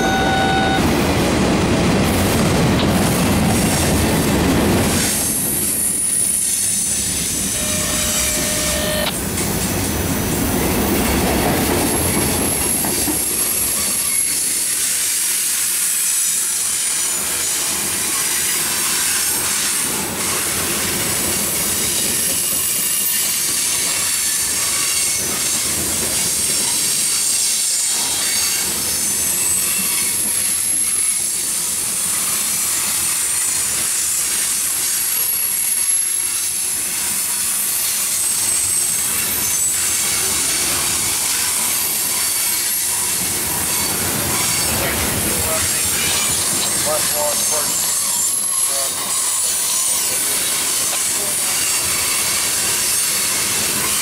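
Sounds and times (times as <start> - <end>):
high-pitched wheel squeal: 0.0 - 0.9, 5.8 - 9.2, 38.1 - 40.0
steel wheels rolling on rail: 0.0 - 54.0.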